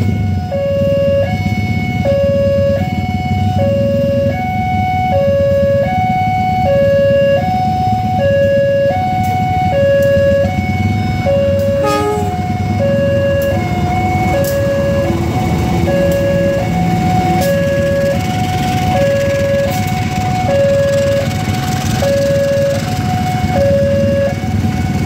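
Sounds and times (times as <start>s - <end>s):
level-crossing two-tone alarm: 0.0s - 24.8s
passenger train rumbling past: 0.0s - 25.0s
train horn blast: 10.2s - 24.4s.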